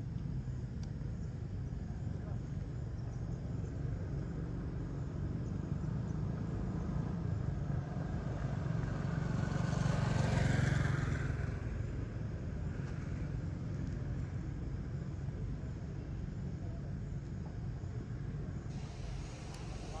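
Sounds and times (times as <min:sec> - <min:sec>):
vehicle passing on road: 0:04.4 - 0:15.8
steady low rumble: 0:11.6 - 0:20.0.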